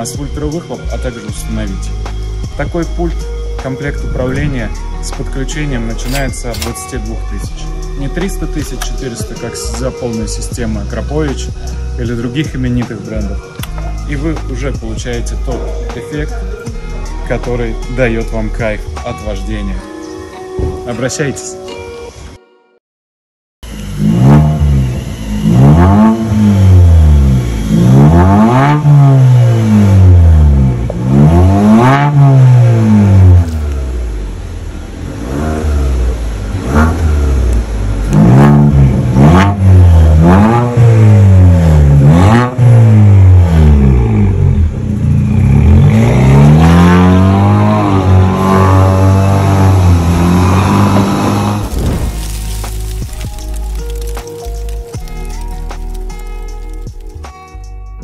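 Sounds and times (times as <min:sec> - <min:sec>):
car engine revving: 0:23.6 - 0:54.8.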